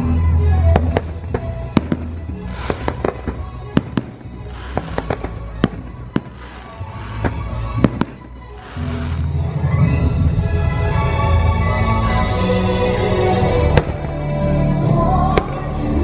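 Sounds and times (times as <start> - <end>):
music playing: 0.0 - 16.0
fireworks bangs: 0.8 - 9.5, 13.7 - 14.3
fireworks hissing crackle: 0.8 - 9.5.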